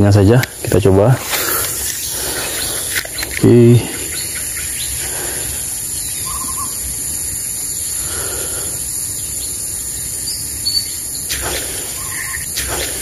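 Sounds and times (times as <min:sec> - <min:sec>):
high insect drone: 0:00.0 - 0:13.0
faint bird calls: 0:01.3 - 0:13.0.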